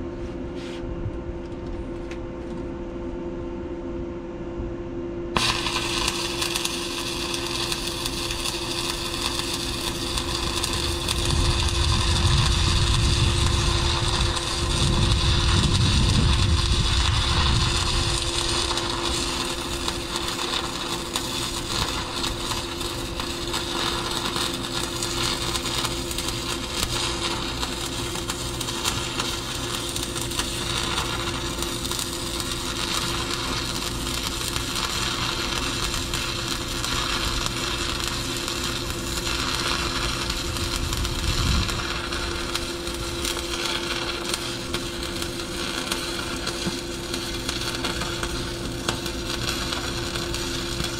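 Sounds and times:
low hum: 0.0s - 50.9s
welding arc crackling: 5.4s - 50.9s
low rumble: 5.5s - 25.0s.

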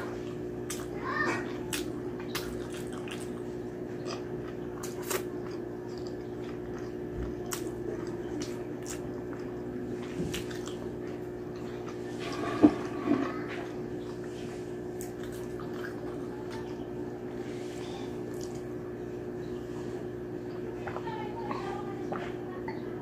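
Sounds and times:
steady low hum: 0.0s - 23.0s
person chewing with lip smacks: 0.6s - 12.2s, 14.0s - 16.8s, 18.2s - 18.7s.

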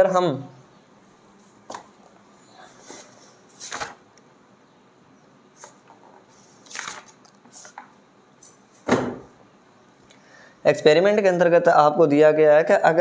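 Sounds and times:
book pages rustling: 2.8s - 4.0s, 5.6s - 8.6s.

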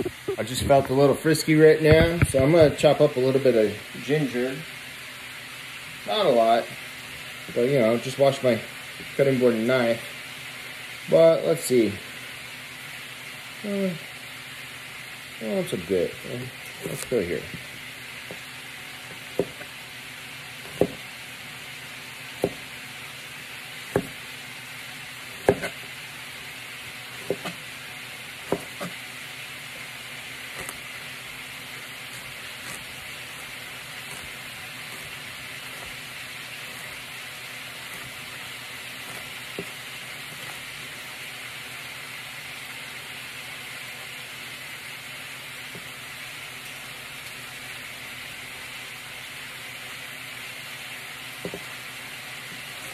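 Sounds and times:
meat sizzling in a pan: 0.0s - 52.9s
knife chopping on cutting board: 1.9s - 2.8s, 16.8s - 19.8s, 20.5s - 21.2s, 22.3s - 22.8s, 23.8s - 24.3s, 25.3s - 25.9s, 27.0s - 27.7s, 28.4s - 29.0s, 30.5s - 31.0s, 32.0s - 40.8s, 45.7s - 45.9s, 51.4s - 51.7s.

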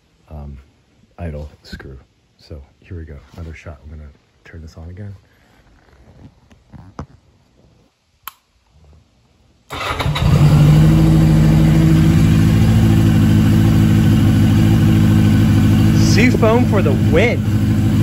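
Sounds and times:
motorcycle engine running: 9.8s - 18.0s.

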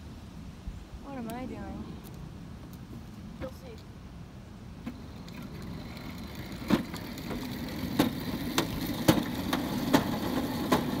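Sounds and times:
wheels knocking over pavement joints: 4.8s - 11.0s
go-kart motor humming: 4.9s - 11.0s.

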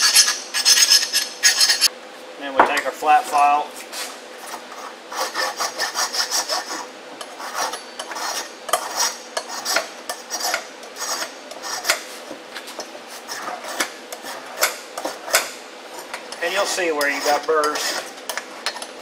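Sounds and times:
file scraping metal: 0.0s - 1.9s, 4.7s - 12.1s, 13.2s - 18.1s.

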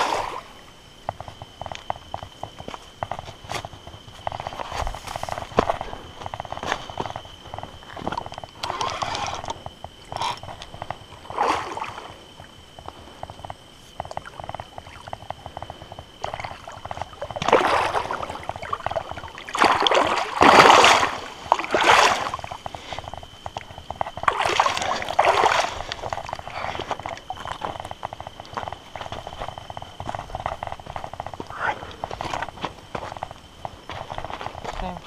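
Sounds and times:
fish splashing in water: 16.2s - 28.3s.

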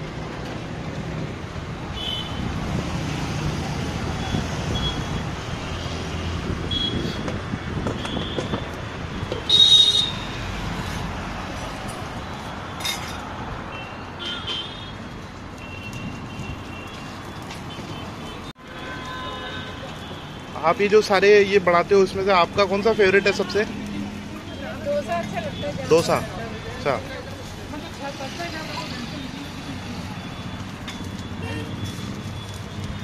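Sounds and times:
road traffic passing: 0.0s - 33.0s
vehicle horn toots: 9.5s - 10.3s, 31.4s - 32.0s.

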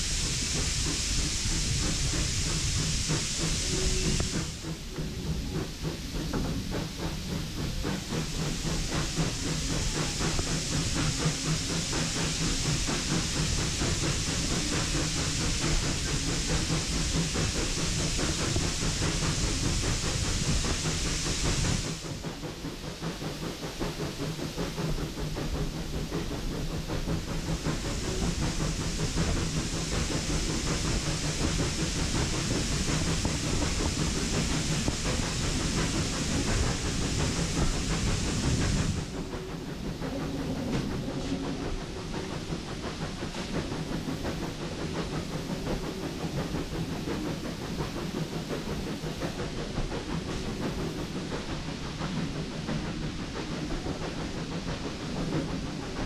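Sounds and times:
steam hiss: 0.0s - 56.0s
train coach rumbling and rattling: 0.0s - 56.0s.

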